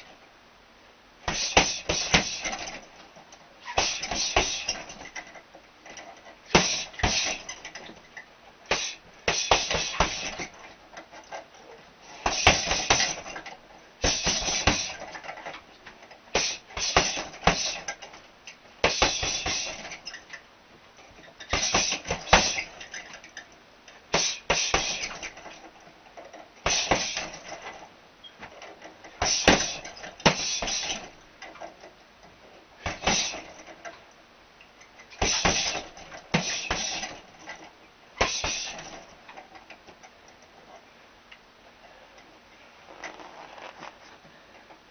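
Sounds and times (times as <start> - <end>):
gloved punches on punch bag: 1.3 - 2.7, 3.8 - 4.8, 6.6 - 7.4, 8.7 - 10.4, 12.2 - 13.2, 14.0 - 15.0, 16.4 - 17.8, 18.8 - 19.8, 21.5 - 22.7, 24.2 - 25.2, 26.7 - 27.3, 29.2 - 31.0, 32.8 - 33.4, 35.2 - 37.2, 38.2 - 38.8.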